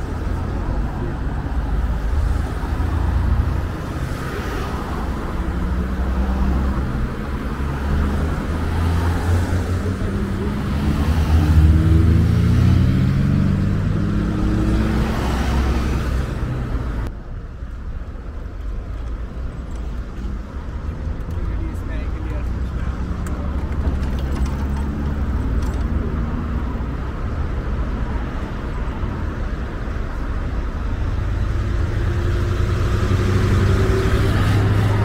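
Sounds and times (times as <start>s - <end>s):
road traffic rumble: 0.0s - 35.0s
vehicle engine accelerating: 6.6s - 17.0s, 31.2s - 35.0s.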